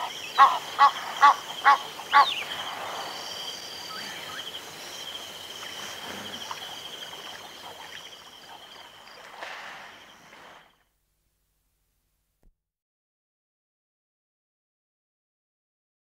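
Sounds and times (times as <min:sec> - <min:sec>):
larks chirping: 0:00.0 - 0:09.2
insects trilling: 0:00.0 - 0:10.9.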